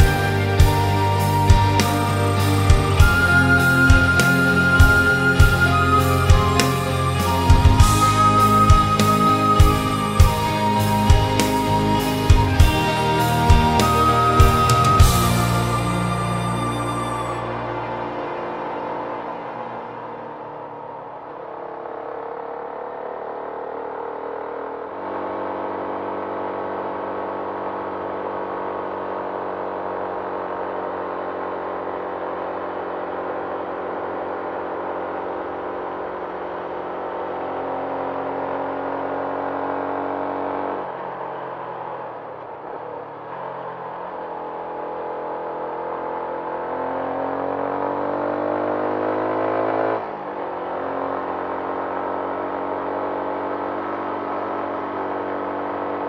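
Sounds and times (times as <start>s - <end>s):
motorcycle engine running: 0.0s - 39.7s.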